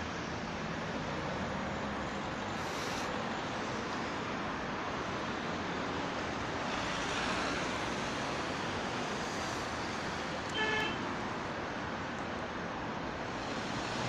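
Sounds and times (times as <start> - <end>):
road traffic noise: 0.0 - 14.0
car horn toot: 10.5 - 11.0.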